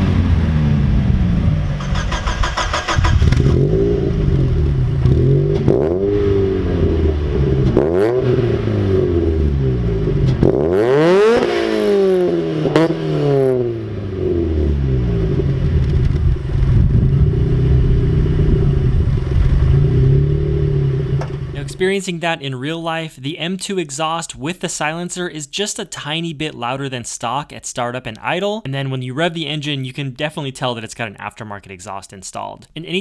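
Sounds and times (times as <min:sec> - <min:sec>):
car engine idling and revving: 0:00.0 - 0:21.8.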